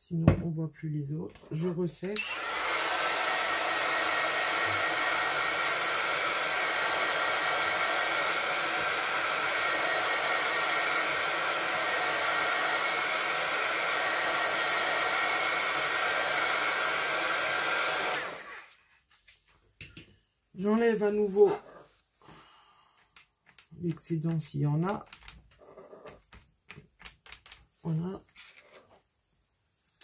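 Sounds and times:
heat gun blowing air: 0:02.2 - 0:18.8.

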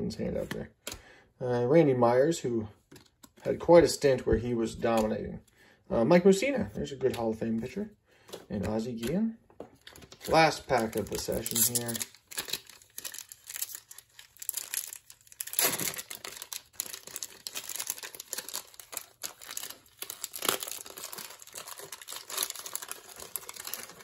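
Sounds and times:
wax-paper wrapper crinkling and tearing: 0:09.7 - 0:24.0.

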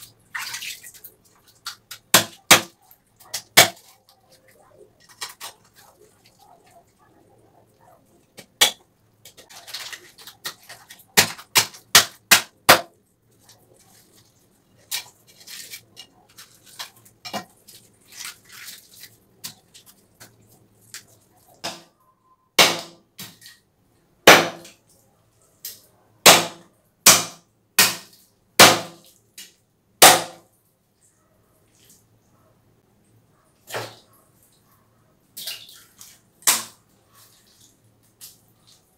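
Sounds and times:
knife chopping fish on wood block: 0:02.1 - 0:02.7, 0:11.2 - 0:12.9
knife cutting and scraping: 0:13.8 - 0:20.0.

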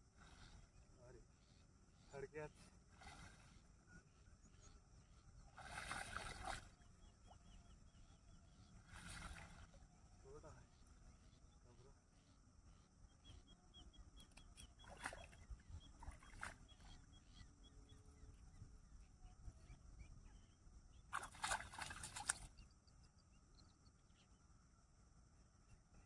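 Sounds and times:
fish splashing in shallow water: 0:02.8 - 0:03.8, 0:05.4 - 0:07.4, 0:08.8 - 0:09.8, 0:14.7 - 0:17.0, 0:21.1 - 0:22.6.

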